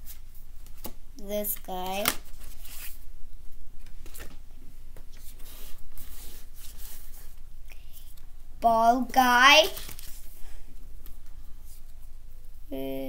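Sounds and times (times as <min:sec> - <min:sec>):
trading cards rustling: 0:00.0 - 0:03.0, 0:09.5 - 0:10.4.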